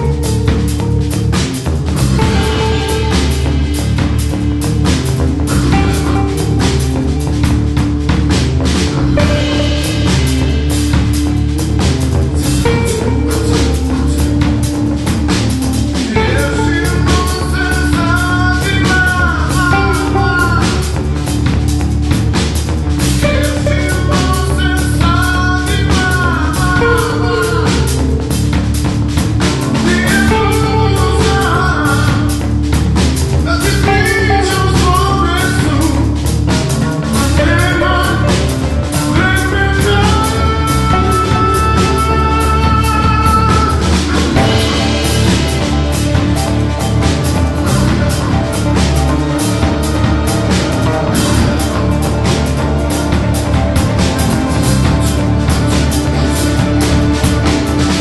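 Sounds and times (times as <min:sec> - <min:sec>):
amplified string instrument: 0:00.0 - 0:58.0
drum kit: 0:00.0 - 0:58.0
electric bass: 0:00.0 - 0:58.0
electric guitar: 0:00.0 - 0:58.0
person singing: 0:02.0 - 0:07.8, 0:08.7 - 0:11.3, 0:12.2 - 0:21.8, 0:23.1 - 0:32.7, 0:33.4 - 0:58.0
person singing into a microphone: 0:16.0 - 0:21.2, 0:23.2 - 0:28.3, 0:29.8 - 0:32.5, 0:33.4 - 0:36.4, 0:37.0 - 0:45.0.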